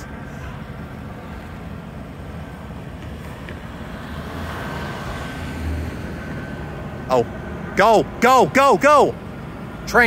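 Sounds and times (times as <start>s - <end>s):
road traffic: 0.0s - 10.0s
car driving past close by: 3.2s - 6.8s.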